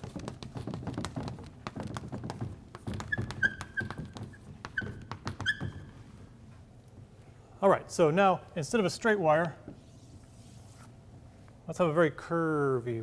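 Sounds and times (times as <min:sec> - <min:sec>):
chalk tapping and scratching: 0:00.0 - 0:05.9
chalk squeaking: 0:02.7 - 0:06.0.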